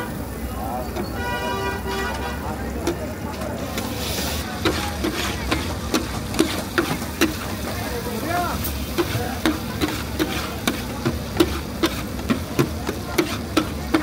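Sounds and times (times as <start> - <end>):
metal spatula striking wok: 4.6 - 7.7, 8.9 - 14.0.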